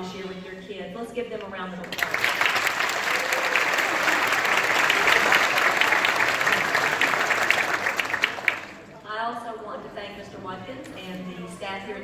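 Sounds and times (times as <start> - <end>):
audience applauding: 1.9 - 8.9.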